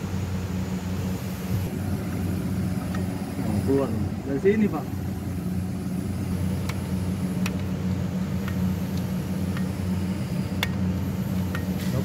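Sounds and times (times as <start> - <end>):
low machine hum: 0.0 - 12.0.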